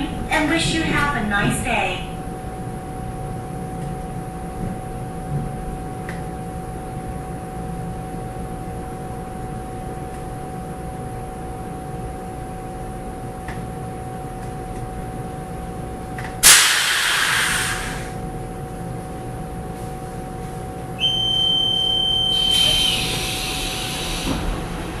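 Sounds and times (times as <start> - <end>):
train equipment hum: 14.4 - 25.0
sliding doors hissing open: 16.4 - 18.1, 22.3 - 25.0
compressed air hiss: 16.4 - 18.2, 22.5 - 24.4
door warning beep: 21.0 - 23.1.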